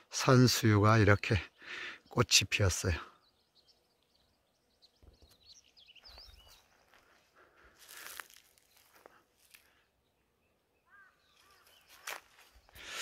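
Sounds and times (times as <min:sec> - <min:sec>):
small birds chirping: 0:00.0 - 0:13.0
footsteps crunching on dry ground: 0:05.0 - 0:09.9, 0:11.0 - 0:13.0.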